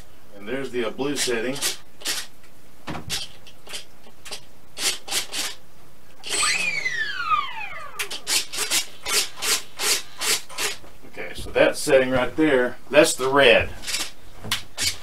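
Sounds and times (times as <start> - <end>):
servos buzzing: 6.2 - 10.8
whine falling in pitch: 6.4 - 8.1.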